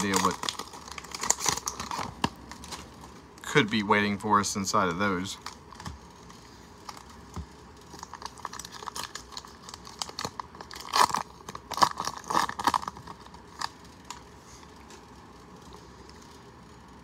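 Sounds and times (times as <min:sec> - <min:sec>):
foil wrapper tearing and crinkling: 0:00.0 - 0:03.2, 0:05.3 - 0:14.3.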